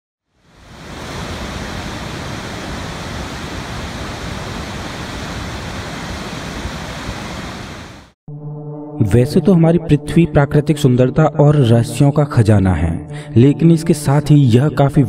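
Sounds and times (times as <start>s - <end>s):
waterfall rushing: 0.4s - 8.2s.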